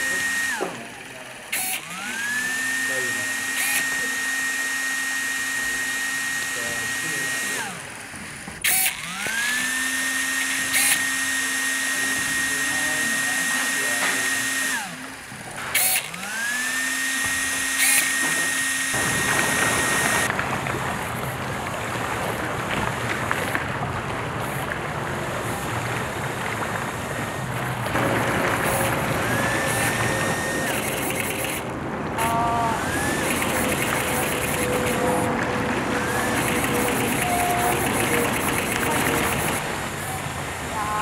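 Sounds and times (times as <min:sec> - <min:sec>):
small electric motor whirring: 0:00.0 - 0:20.4, 0:25.4 - 0:41.0
sharp clicks: 0:28.6 - 0:32.3, 0:32.9 - 0:35.2, 0:36.1 - 0:39.6.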